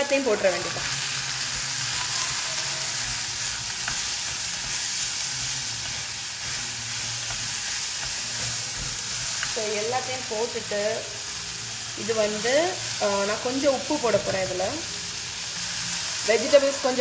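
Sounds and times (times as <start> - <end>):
vegetables sizzling in oil: 0.0 - 17.0
wooden spoon stirring and scraping: 0.4 - 10.3.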